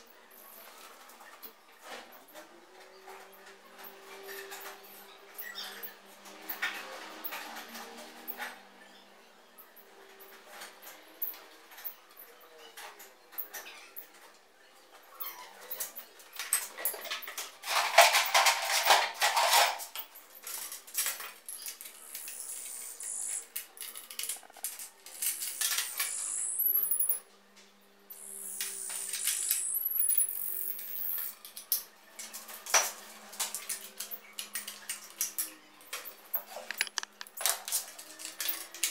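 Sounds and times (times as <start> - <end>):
metal tools clattering on steel table: 16.5 - 27.2, 36.4 - 37.5.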